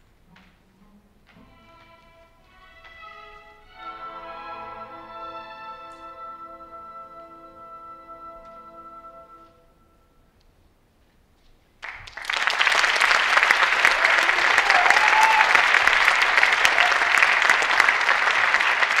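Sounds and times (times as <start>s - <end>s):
audience applauding: 11.8s - 19.0s.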